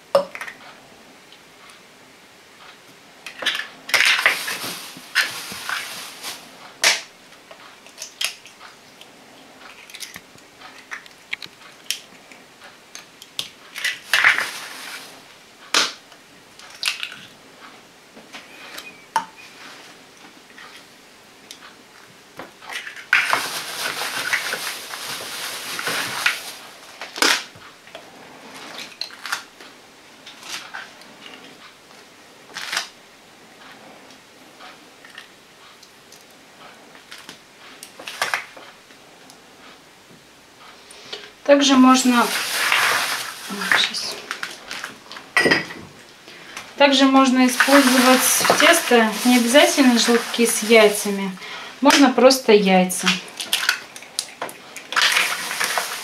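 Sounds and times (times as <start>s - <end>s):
plastic bag rustling: 3.3s - 7.1s, 13.5s - 16.0s, 22.6s - 27.7s, 37.0s - 38.7s, 41.5s - 56.0s
eggshells cracking: 13.4s - 14.8s, 42.2s - 45.0s.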